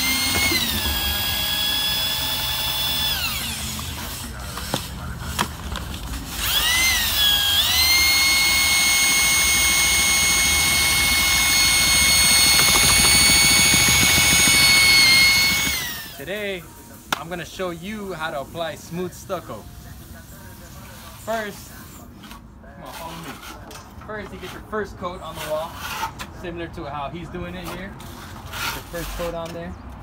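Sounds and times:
electric paddle mixer whining: 0.0 - 3.6, 6.4 - 16.2.

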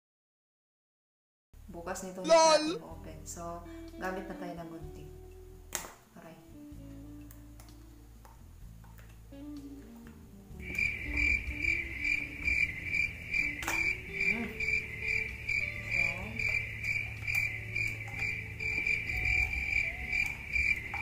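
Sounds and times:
cricket chirping: 10.6 - 21.0.

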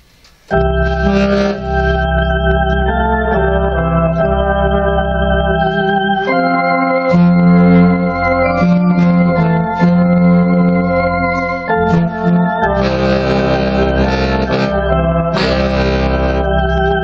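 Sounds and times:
trumpet and saxophone hymn: 0.9 - 2.0, 7.1 - 16.8.

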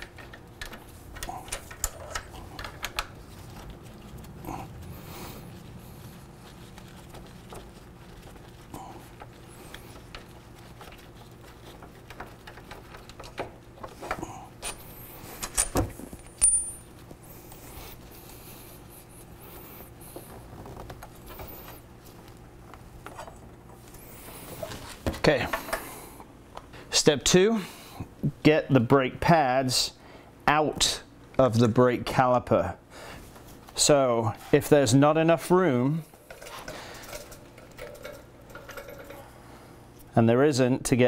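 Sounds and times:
metal tools clinking and scraping: 14.6 - 17.0, 36.3 - 39.3.

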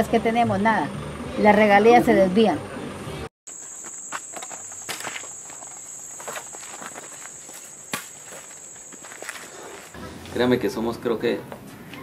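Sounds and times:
insects high-pitched drone: 2.8 - 9.9
footsteps: 3.5 - 10.0.

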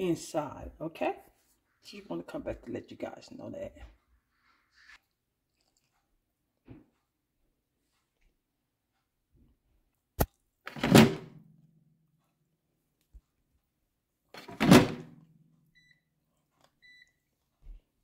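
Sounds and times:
air fryer basket thunk: 14.4 - 15.0
faint control panel beeps: 15.8 - 16.1, 16.8 - 17.2.

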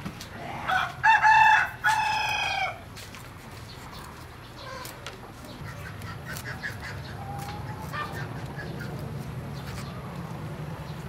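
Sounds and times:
rooster crowing: 0.7 - 2.8.

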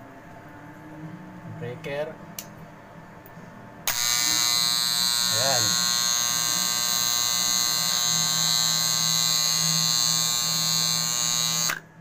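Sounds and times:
contactor buzzing: 3.9 - 11.8.

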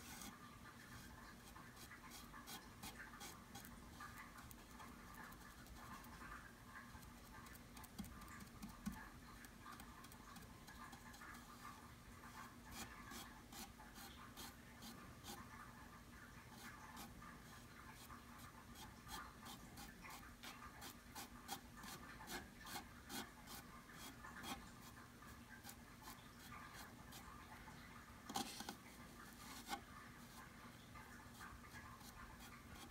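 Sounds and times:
faint steady hum: 0.0 - 32.9
fingertip tapping and rubbing: 6.9 - 11.5.

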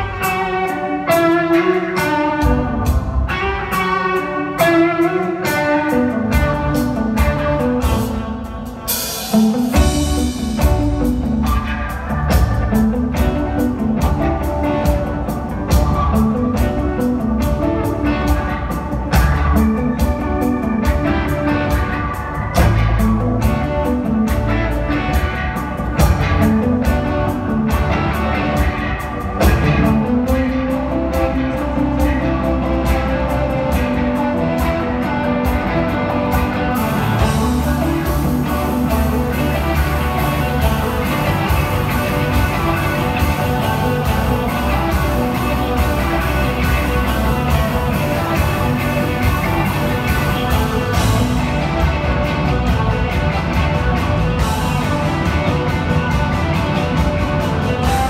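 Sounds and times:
bass guitar: 0.0 - 58.0
drum kit: 0.0 - 58.0
electric guitar through amplifiers: 0.0 - 58.0.

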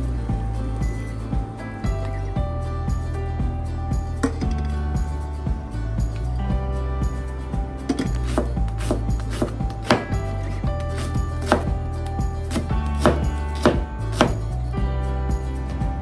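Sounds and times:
background music: 0.0 - 16.0
knife chopping on cutting board: 7.9 - 10.2, 10.9 - 11.7, 12.5 - 14.4.

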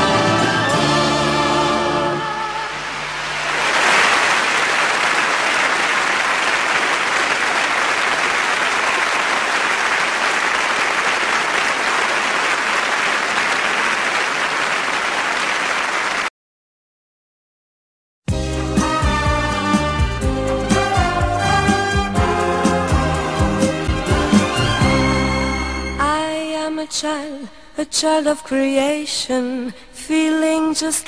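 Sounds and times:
audience applauding: 3.0 - 16.3.

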